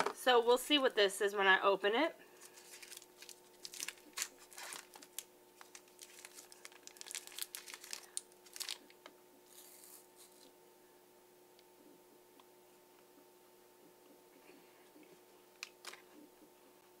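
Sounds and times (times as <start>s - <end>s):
plastic wrapper crinkling: 2.4s - 10.5s.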